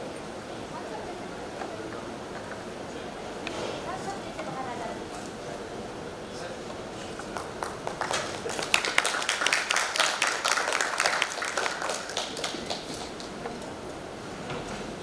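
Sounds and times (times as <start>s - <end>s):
audience applauding: 7.2s - 13.6s.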